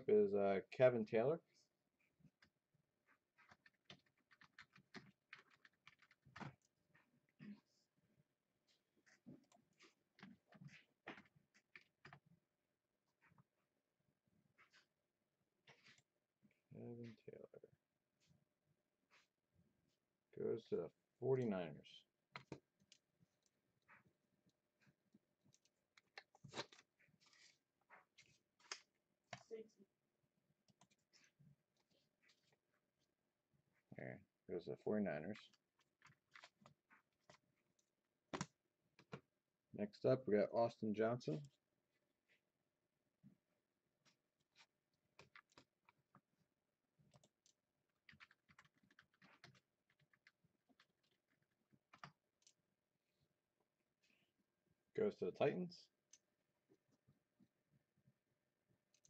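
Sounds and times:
faint keyboard typing: 3.1s - 7.6s, 30.7s - 32.6s, 44.0s - 46.4s, 47.0s - 52.6s.

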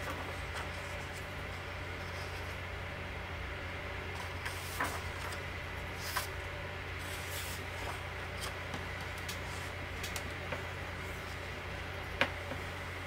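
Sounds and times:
steady low hum: 0.0s - 13.0s
book pages turning: 4.2s - 6.4s.

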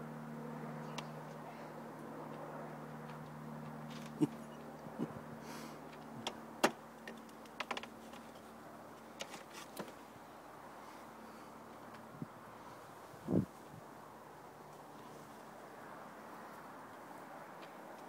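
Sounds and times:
light clicks and knocks: 5.9s - 8.4s.

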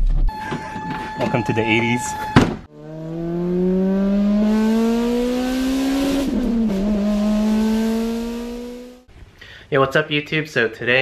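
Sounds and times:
car engine accelerating: 2.7s - 9.1s.

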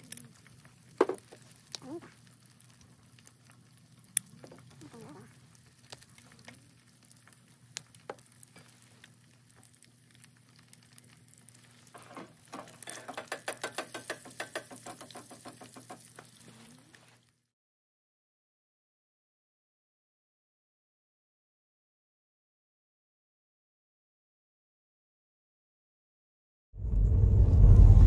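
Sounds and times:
food sizzling in a pan: 0.0s - 17.4s
utensil clicking against metal pot: 12.5s - 16.3s.

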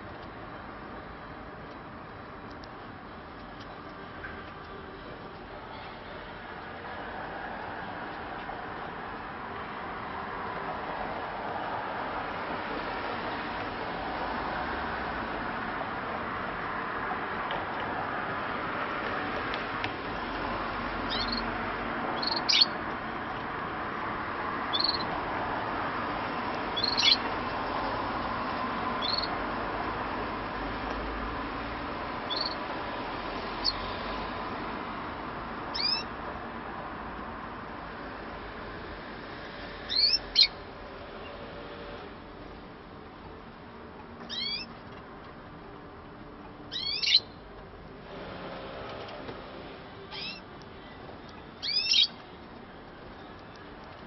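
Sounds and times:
faint steady background noise: 0.0s - 54.0s
canaries chirping: 20.9s - 21.5s, 22.1s - 22.8s, 24.7s - 25.1s, 26.7s - 27.4s, 29.0s - 29.4s, 32.2s - 32.6s, 33.6s - 33.9s, 35.7s - 36.1s, 39.8s - 40.6s, 44.2s - 44.8s, 46.7s - 47.4s, 50.1s - 52.2s.

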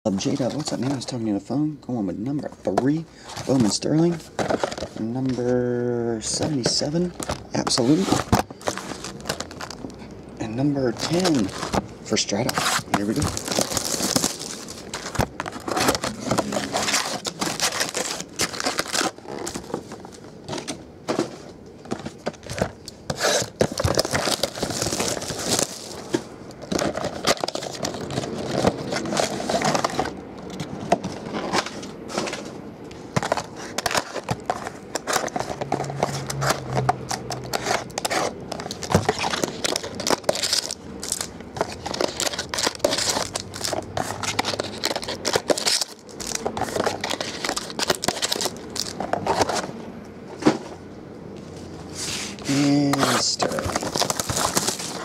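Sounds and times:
card packs rustling: 0.1s - 1.6s, 2.2s - 50.9s, 51.5s - 55.0s
plastic wrap crinkling: 3.2s - 20.4s, 22.1s - 32.4s, 33.2s - 49.6s, 52.3s - 55.0s.

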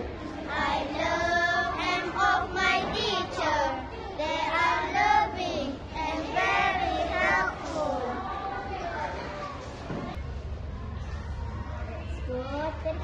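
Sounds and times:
girls singing together: 0.0s - 8.6s.

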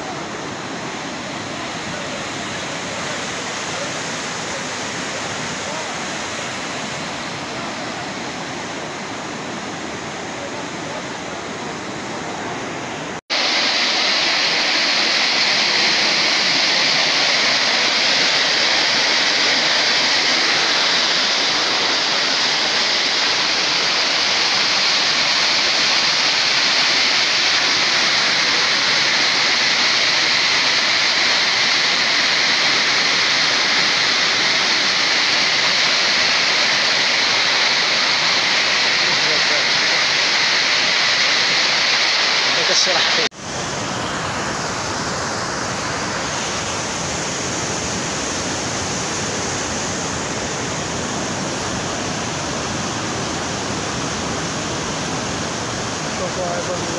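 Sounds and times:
floodwater rushing: 0.0s - 56.9s.

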